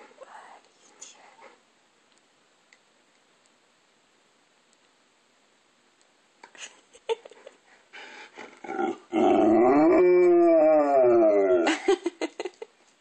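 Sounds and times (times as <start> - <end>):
dog grunting: 8.4 - 9.4
dog howling: 8.6 - 11.7.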